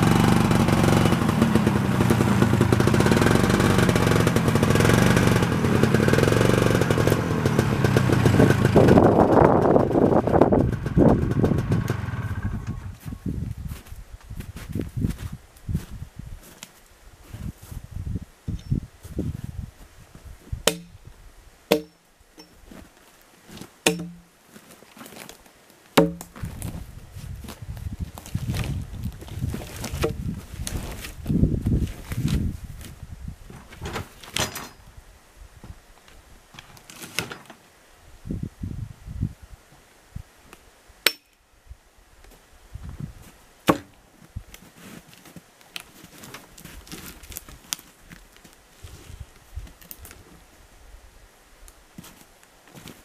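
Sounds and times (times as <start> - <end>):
axe chopping log: 20.7 - 21.0, 21.7 - 22.0, 23.8 - 24.3, 26.0 - 26.4, 41.0 - 41.4, 43.6 - 44.0
knocks and clicks of metal and wood: 20.7 - 21.0, 21.7 - 22.6, 23.9 - 24.3, 26.0 - 26.4
sharp metallic clanks: 20.7 - 21.0, 21.7 - 22.6, 23.9 - 24.3, 34.4 - 34.8.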